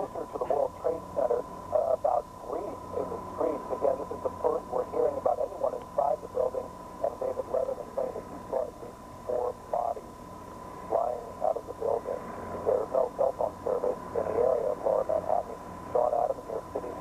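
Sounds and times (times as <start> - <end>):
distorted radio voice: 0.0 - 10.1, 10.9 - 17.0
high whine: 0.0 - 17.0
low mains hum: 0.0 - 17.0.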